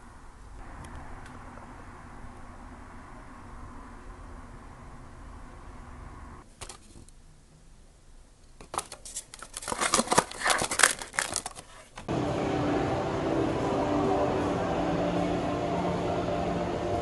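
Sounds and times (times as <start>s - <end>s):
plastic box clicking and crinkling: 8.6s - 11.8s.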